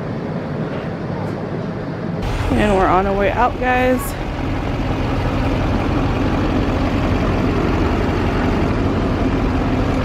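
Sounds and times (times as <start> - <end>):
pickup truck engine idling: 2.2 - 10.0.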